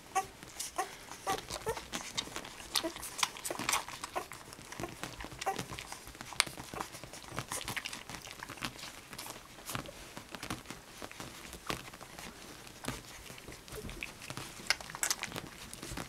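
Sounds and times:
puppies suckling: 0.0 - 16.0
puppies squeaking: 0.1 - 7.8.

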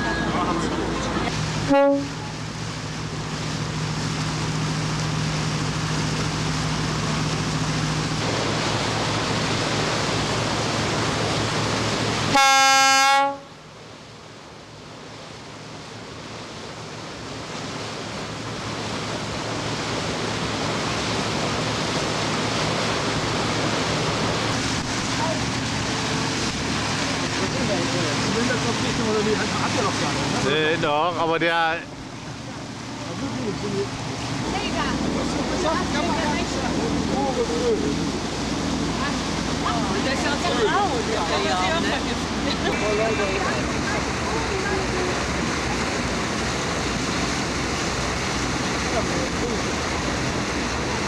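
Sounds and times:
boat engine humming: 0.0 - 51.0
water noise: 0.0 - 51.0
wind: 0.0 - 51.0
boat horn: 1.3 - 2.6, 12.2 - 13.6, 40.0 - 43.8.

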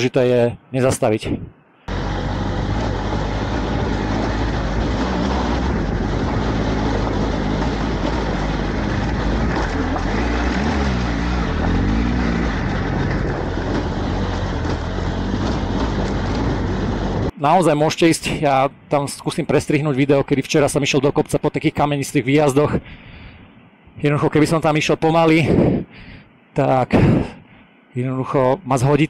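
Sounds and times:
motorcycle engine under throttle: 1.9 - 17.3.

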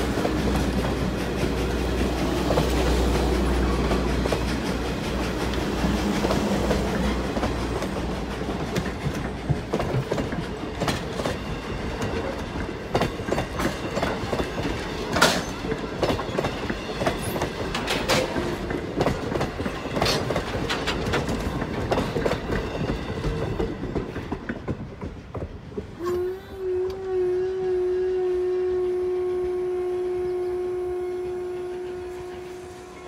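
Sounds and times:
train coaches clattering over rail joints: 0.0 - 26.0
steam whistle blast: 26.0 - 33.0.

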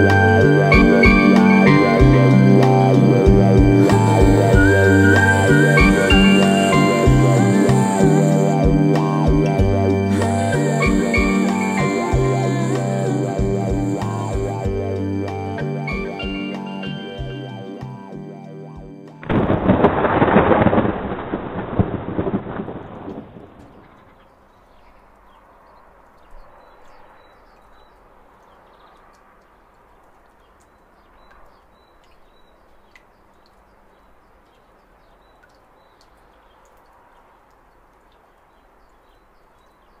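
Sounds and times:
faint steady hiss: 0.0 - 20.9, 21.7 - 40.0
loud rumble: 0.5 - 16.3.

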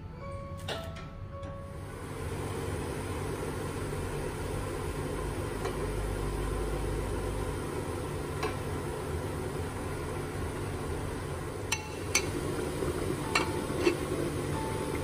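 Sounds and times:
water boiling in a pot: 1.8 - 15.0
ceramic bowl tapping on metal: 11.7 - 12.4, 13.3 - 14.1.

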